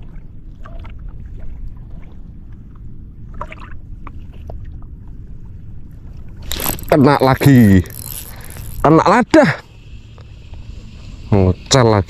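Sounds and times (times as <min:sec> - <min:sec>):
choppy sea water around boat: 0:00.0 - 0:12.0
faint clicks and squeaks: 0:06.4 - 0:09.0.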